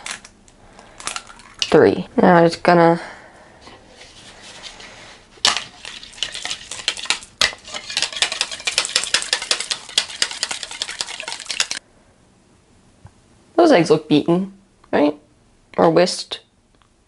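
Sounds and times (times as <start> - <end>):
wire whisk rattling against bowl: 5.5 - 11.8.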